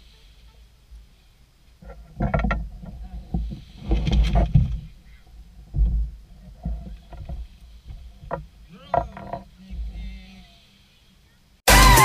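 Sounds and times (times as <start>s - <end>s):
boat hull knocking and scraping: 1.8s - 10.0s.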